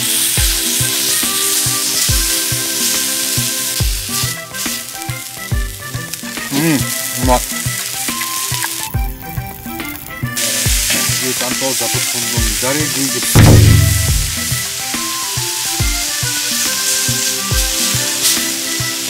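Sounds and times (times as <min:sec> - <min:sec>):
background music: 0:00.0 - 0:19.0
food sizzling: 0:00.0 - 0:19.0
loud low thud: 0:13.4 - 0:14.8.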